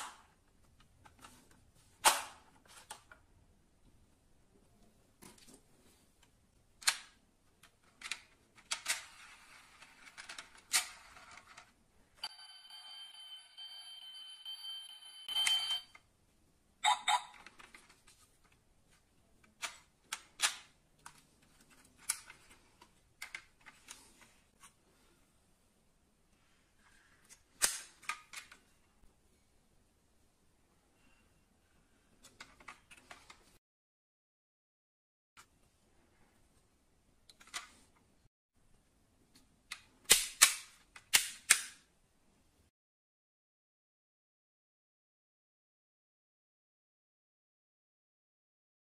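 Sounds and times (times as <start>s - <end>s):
high-pitched electronic ringing tone: 12.2s - 15.9s.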